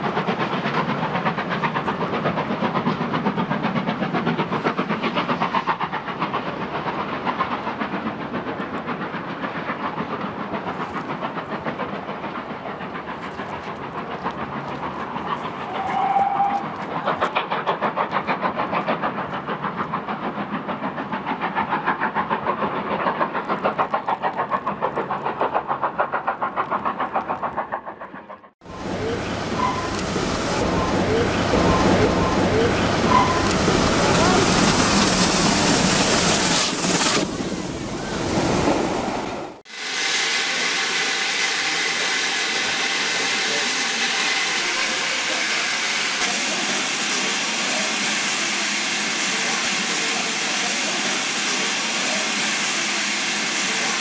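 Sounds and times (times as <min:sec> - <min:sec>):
steam locomotive exhaust beats: 0:00.0 - 0:54.0
steady whistle note: 0:15.7 - 0:16.7.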